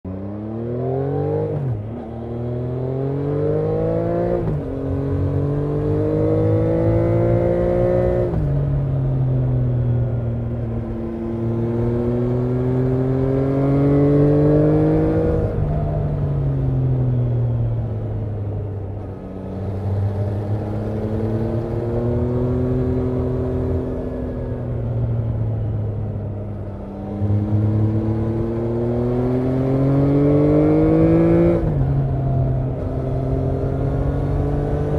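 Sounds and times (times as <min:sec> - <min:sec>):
motorcycle engine revving: 0:11.1 - 0:15.6, 0:26.8 - 0:34.9.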